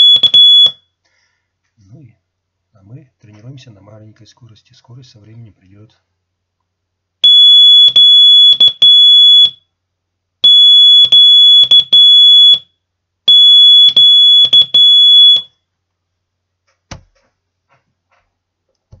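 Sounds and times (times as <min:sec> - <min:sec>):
morse code beeps: 0:00.0 - 0:00.8, 0:07.2 - 0:09.6, 0:13.3 - 0:15.5.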